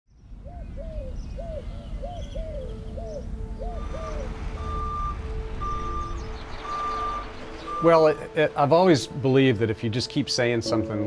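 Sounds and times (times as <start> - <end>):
vehicle engine rumble: 0.1 - 9.9
bird calling: 0.4 - 8.5
reversing alarm beeping: 3.6 - 8.3.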